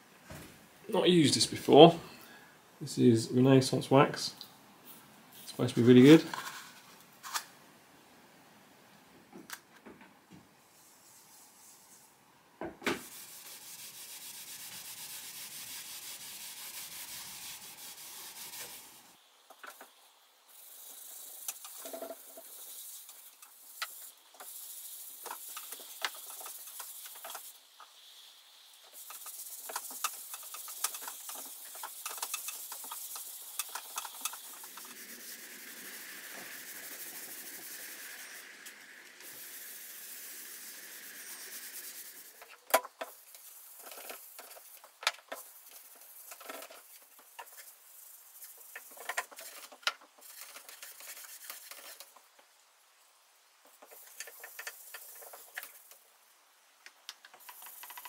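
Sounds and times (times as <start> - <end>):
cloth pad rubbing wax on wood: 13.0 - 19.0.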